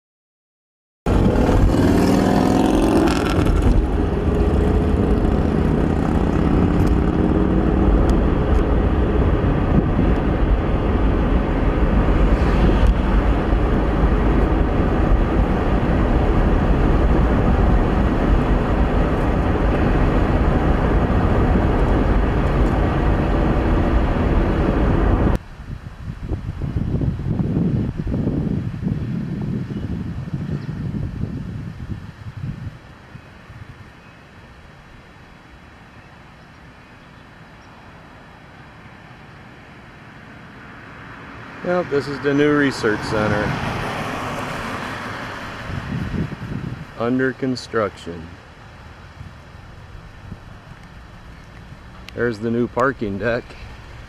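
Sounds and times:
car engine and road noise: 0:01.1 - 0:54.0
quiet outdoor sound: 0:31.3 - 0:54.0.

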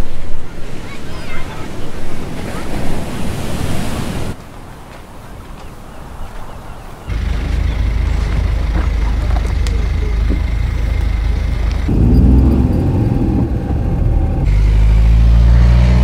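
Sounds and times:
faint outdoor sounds: 0:00.0 - 0:16.0
car engine idling: 0:07.1 - 0:15.3.

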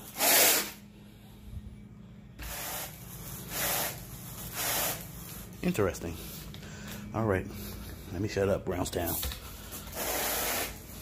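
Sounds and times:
rake rubbing through carpet: 0:00.0 - 0:00.8, 0:02.4 - 0:05.5, 0:09.6 - 0:11.0.

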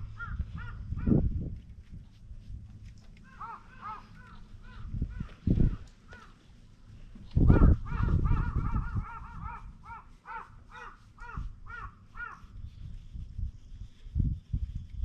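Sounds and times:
bird calling: 0:00.0 - 0:01.2, 0:03.2 - 0:06.5, 0:07.5 - 0:12.6
low rumble on microphone: 0:00.0 - 0:15.0.

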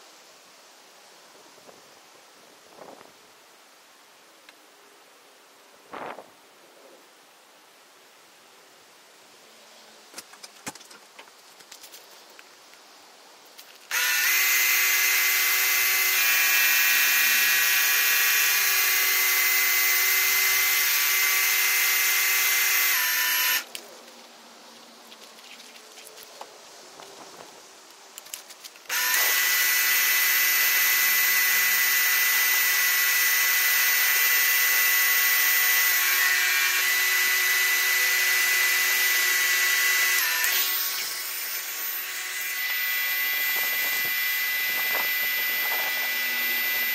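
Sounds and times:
pressure washer motor whining: 0:13.9 - 0:23.6, 0:28.9 - 0:46.9.

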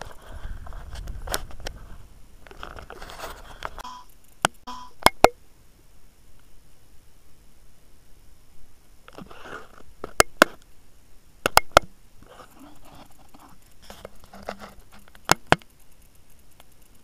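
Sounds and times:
faint rustling: 0:00.0 - 0:03.8, 0:12.2 - 0:17.0.

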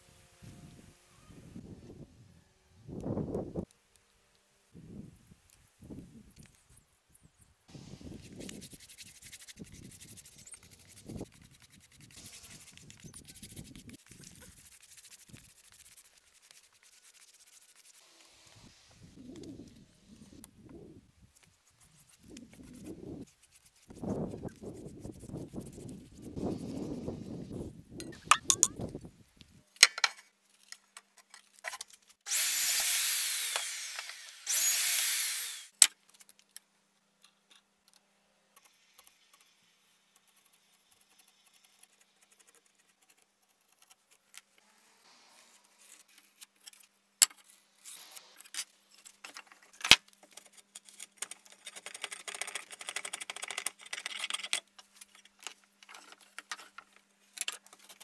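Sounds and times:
hand blade shaving wood: 0:32.3 - 0:35.7
power tool running: 0:32.3 - 0:35.7.

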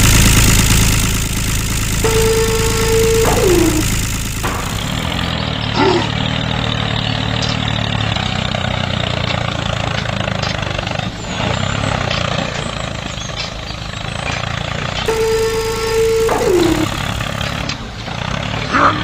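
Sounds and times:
tractor engine droning: 0:00.0 - 0:18.2
falling squeak: 0:02.0 - 0:05.3.

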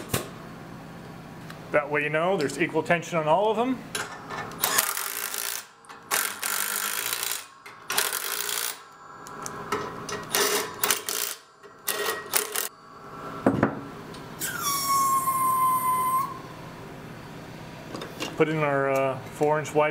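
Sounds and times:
high-pitched squeal: 0:12.3 - 0:17.3.

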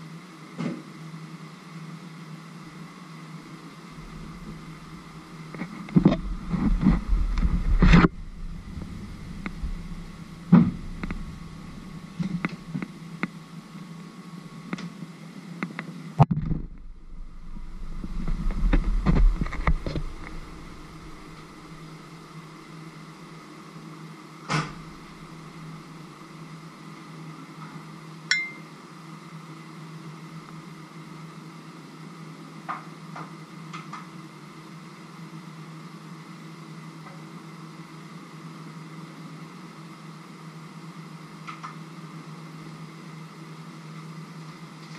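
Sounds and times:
steady low hum: 0:01.3 - 0:31.0
rumble: 0:03.9 - 0:13.3, 0:16.2 - 0:23.0, 0:24.7 - 0:26.0
knocks and clicks: 0:05.6 - 0:12.9.

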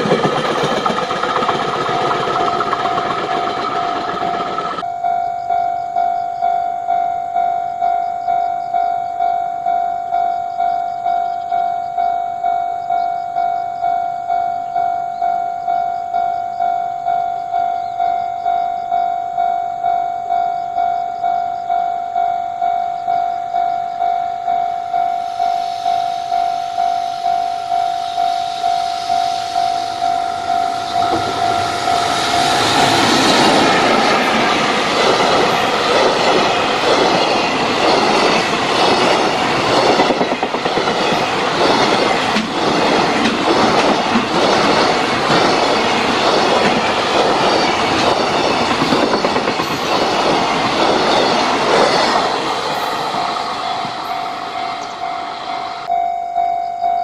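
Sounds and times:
train wheels clattering over rail joints: 0:00.0 - 0:04.8, 0:30.8 - 0:54.1
level-crossing bell dinging: 0:00.0 - 0:37.6, 0:47.6 - 0:57.0.

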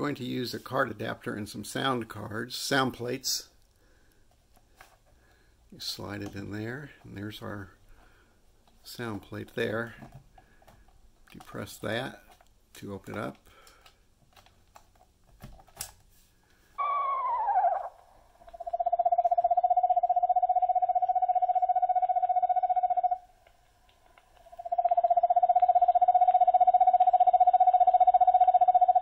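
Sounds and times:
recorded owl calls: 0:16.8 - 0:23.2, 0:24.5 - 0:29.0.

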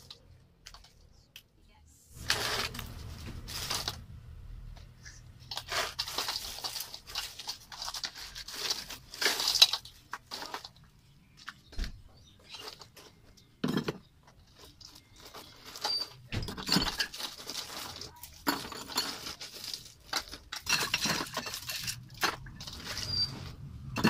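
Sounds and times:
ice cubes clinking in metal basin: 0:05.5 - 0:10.7, 0:16.5 - 0:23.1
ice knocking against glass bottles: 0:13.6 - 0:24.0.

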